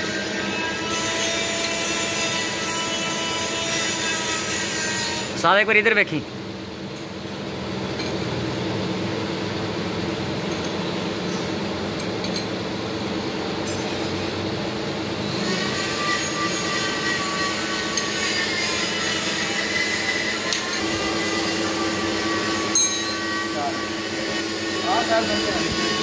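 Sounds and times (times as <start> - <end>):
thin metallic squeal: 15.2 - 26.0
metal clinking: 22.6 - 23.3.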